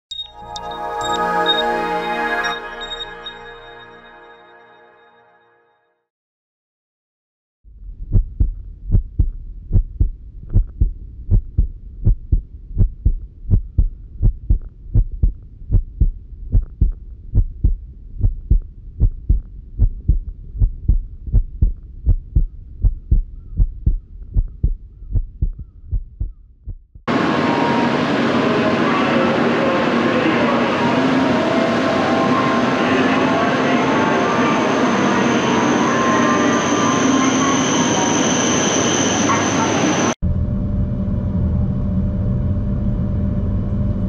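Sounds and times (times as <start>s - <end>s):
low repeating thumps: 7.7s - 27.1s.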